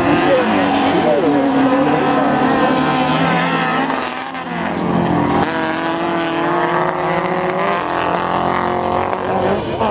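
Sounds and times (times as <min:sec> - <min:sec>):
race car engines revving: 0:00.0 - 0:09.9.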